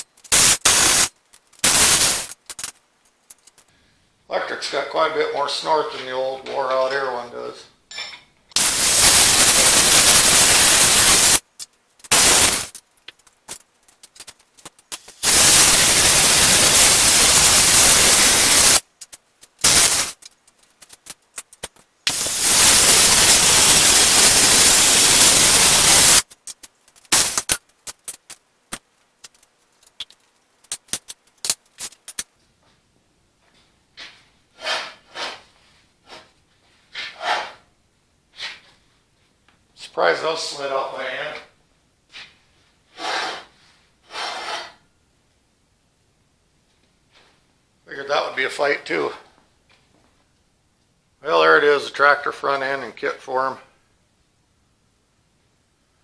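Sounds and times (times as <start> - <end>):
torch flame hissing: 0.3 - 2.4, 8.6 - 11.4, 12.0 - 12.8, 14.1 - 18.9, 19.5 - 20.9, 22.0 - 26.3, 27.0 - 28.3.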